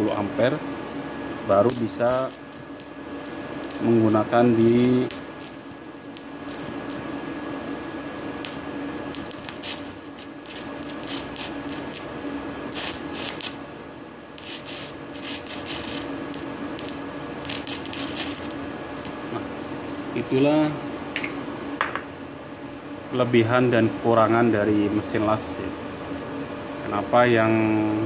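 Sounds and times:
steady welder buzz: 0.0s - 20.0s
welding arc crackling and hissing: 1.5s - 7.2s, 8.3s - 13.7s, 14.3s - 19.3s.

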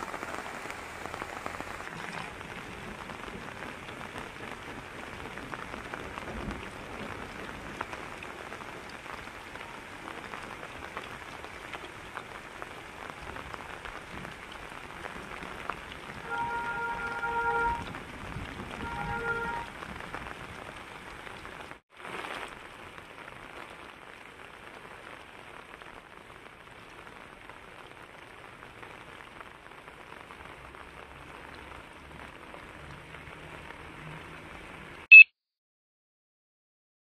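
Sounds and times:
steady rain falling: 0.0s - 35.1s
brief pitched tone: 35.1s - 35.3s
short high beep: 35.1s - 35.3s.

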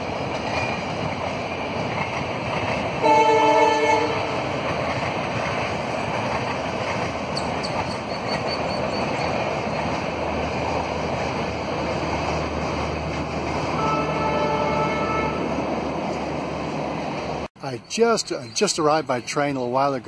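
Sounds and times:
faint ticking of train wheels: 0.0s - 13.8s
passenger train rumbling past: 0.0s - 20.0s.

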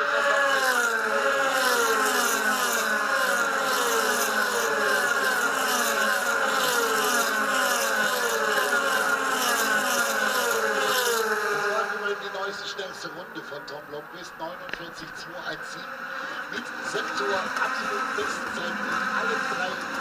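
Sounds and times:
race car engines passing: 0.0s - 20.0s.

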